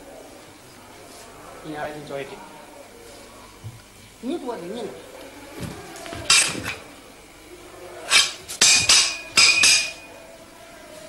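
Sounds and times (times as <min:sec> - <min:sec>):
metal weapons clashing: 0:06.3 - 0:06.8, 0:08.1 - 0:10.1.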